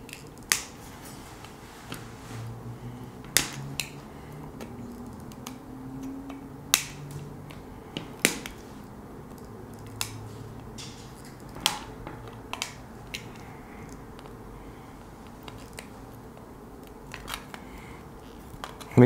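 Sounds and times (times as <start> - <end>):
wire cutters snipping: 3.2 - 4.0, 4.6 - 7.6, 9.3 - 14.3.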